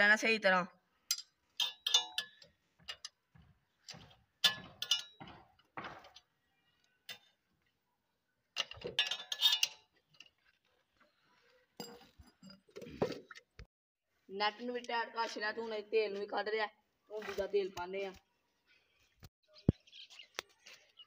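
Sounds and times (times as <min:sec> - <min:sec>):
metal spanner clinking on bolt: 0:01.1 - 0:03.2, 0:03.9 - 0:05.3, 0:08.6 - 0:09.9.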